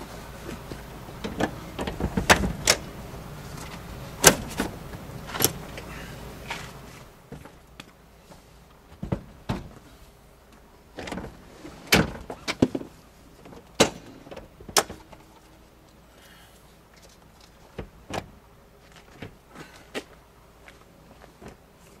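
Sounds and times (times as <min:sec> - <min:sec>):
metal latches snapping: 0:01.2 - 0:02.9, 0:03.6 - 0:05.8
car seat knocking against frame: 0:08.9 - 0:09.8.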